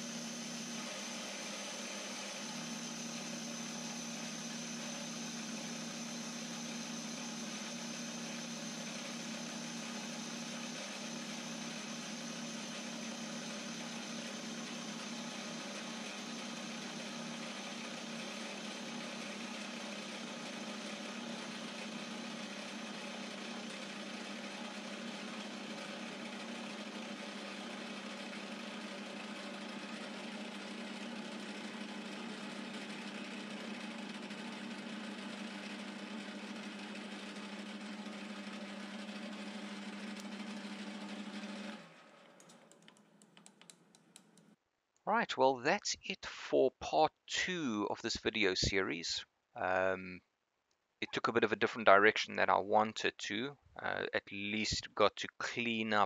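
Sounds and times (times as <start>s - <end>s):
metal lathe motor hum: 0.0s - 42.8s.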